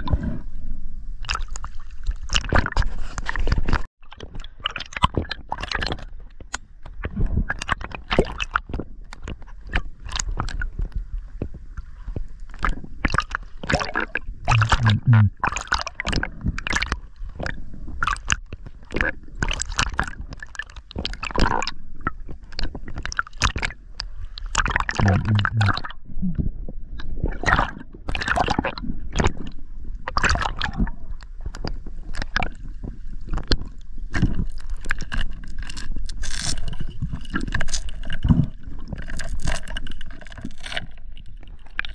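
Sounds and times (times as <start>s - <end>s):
water sloshing and gurgling: 0.0s - 41.9s
low hum: 14.5s - 15.3s.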